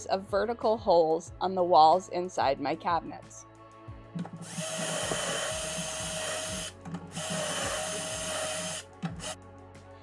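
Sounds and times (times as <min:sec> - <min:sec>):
cordless drill drilling into wood: 0:04.4 - 0:09.4.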